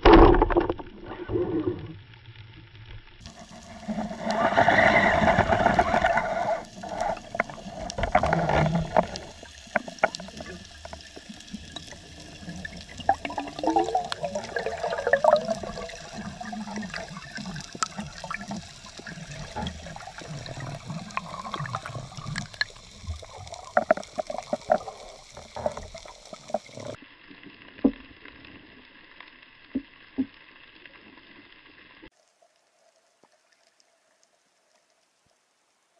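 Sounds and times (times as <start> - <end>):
bubbling: 0.0 - 27.0
rushing water underwater: 0.0 - 35.8.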